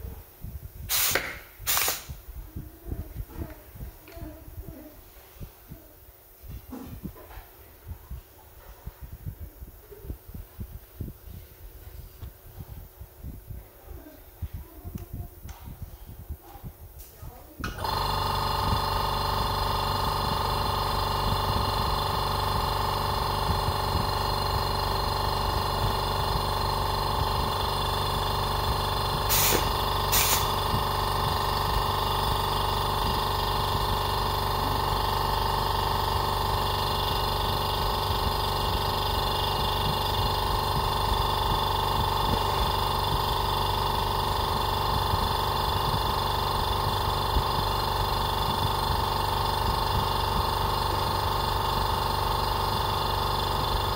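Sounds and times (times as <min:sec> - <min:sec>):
electric motor humming: 0:17.7 - 0:53.9.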